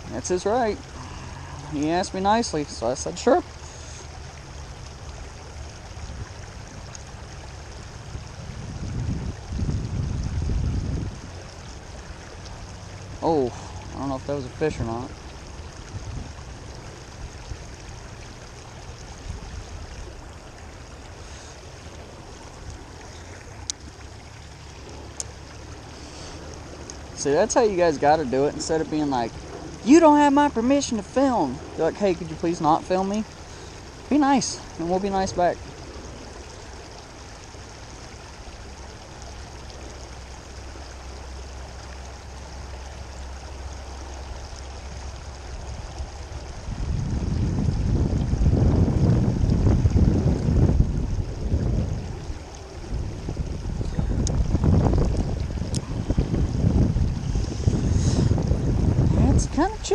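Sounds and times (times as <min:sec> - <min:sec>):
stream rushing over rocks: 0:00.0 - 0:59.9
low rumble: 0:44.7 - 0:59.7.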